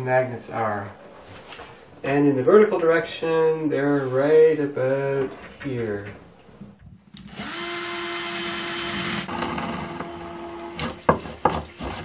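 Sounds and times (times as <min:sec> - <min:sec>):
cordless drill boring through plaster: 0:07.2 - 0:11.0.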